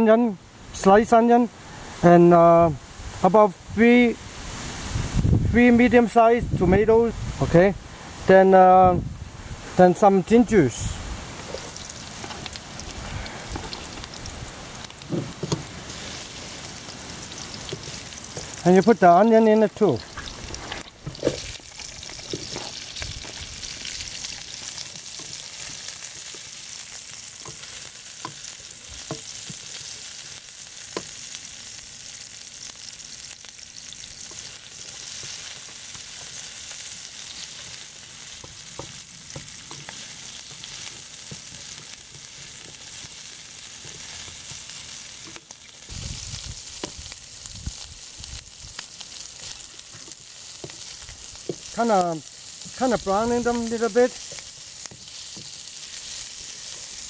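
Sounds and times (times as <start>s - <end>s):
onions sizzling in hot oil: 2.8s - 5.6s, 10.7s - 57.0s
spatula tapping and scraping wok: 27.4s - 30.0s, 38.4s - 43.1s, 54.2s - 55.6s.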